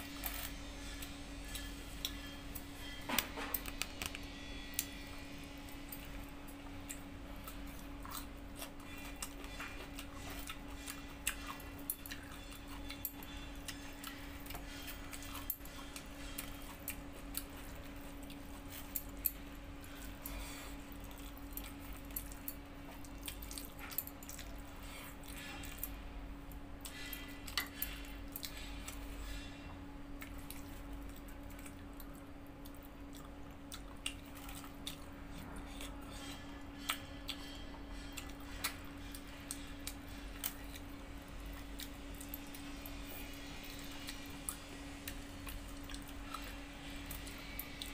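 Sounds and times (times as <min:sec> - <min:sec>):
steady hum: 0:00.0 - 0:47.9
chewing: 0:06.0 - 0:25.9, 0:30.2 - 0:47.9.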